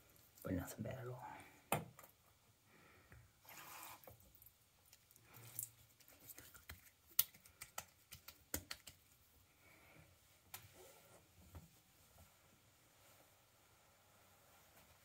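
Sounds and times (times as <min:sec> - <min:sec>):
wet hands rubbing skin: 0:03.5 - 0:09.4
hands patting skin: 0:04.9 - 0:09.3.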